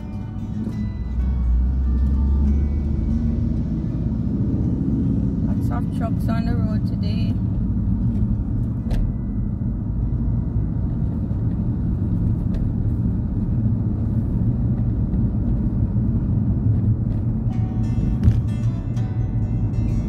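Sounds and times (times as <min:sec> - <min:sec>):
car engine rumble: 0:00.0 - 0:20.0.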